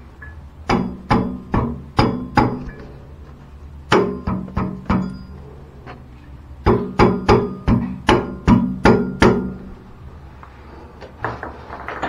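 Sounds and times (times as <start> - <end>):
hammer ringing on metal: 0.7 - 2.9, 3.9 - 5.4, 6.6 - 9.7.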